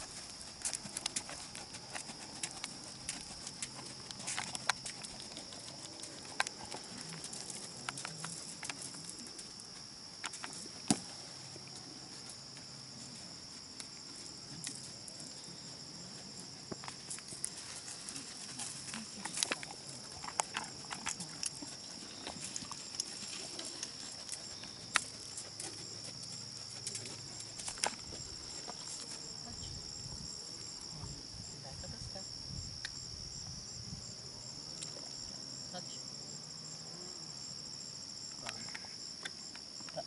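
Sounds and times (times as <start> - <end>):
horse tack clicking: 0.0 - 12.7, 16.5 - 29.3
hooves thudding on sand: 0.0 - 30.0
insects chirring: 0.0 - 40.0.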